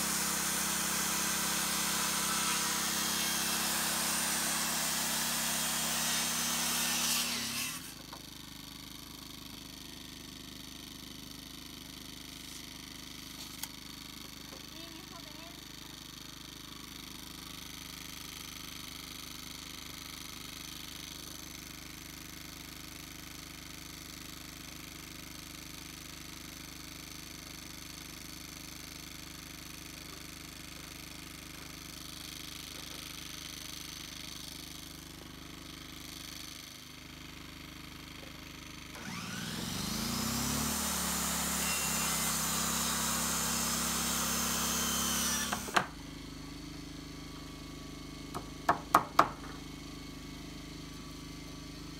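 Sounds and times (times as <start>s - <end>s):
circular saw cutting wood: 0.0s - 8.3s, 38.8s - 46.1s.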